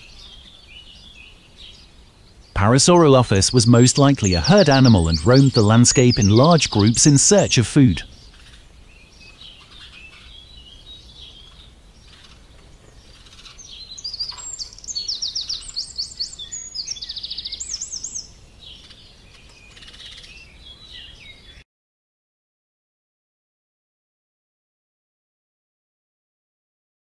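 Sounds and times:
birdsong chirps: 0.0 - 21.6
faint outdoor background: 0.0 - 21.6.

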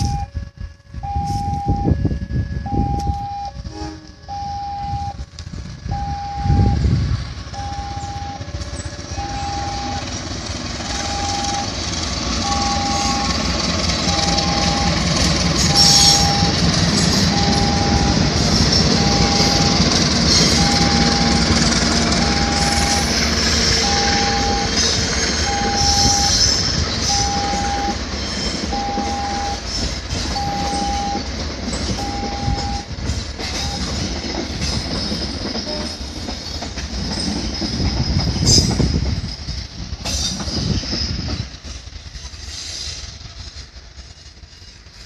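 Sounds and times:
electronic warning beeps: 0.0 - 0.3, 1.0 - 3.6, 4.3 - 5.2, 5.9 - 6.9, 7.6 - 8.4, 9.2 - 10.1, 10.9 - 11.8, 12.4 - 13.4, 14.1 - 15.0, 15.7 - 16.6, 17.3 - 18.3, 18.9 - 19.8, 20.5 - 21.6, 22.2 - 23.1, 23.8 - 24.8, 25.4 - 28.0, 28.7 - 29.6, 30.4 - 31.3, 32.0 - 32.9
wind buffeting microphone: 0.0 - 12.6, 16.2 - 42.2
passenger train passing: 0.0 - 45.0.

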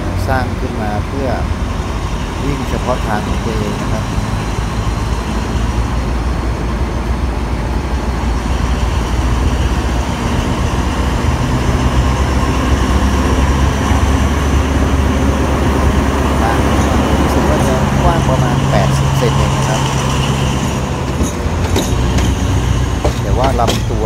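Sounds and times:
diesel locomotive rumbling past: 0.0 - 24.0.

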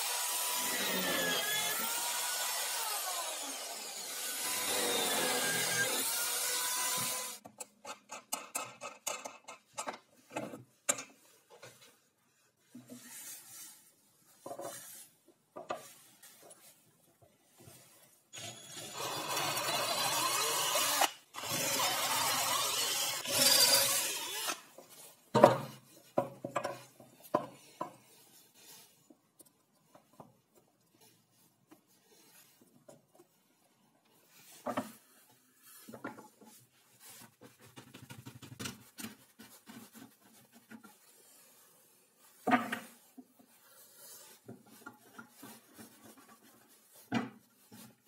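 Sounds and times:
cordless drill boring into wood: 0.0 - 7.4, 18.4 - 24.7.

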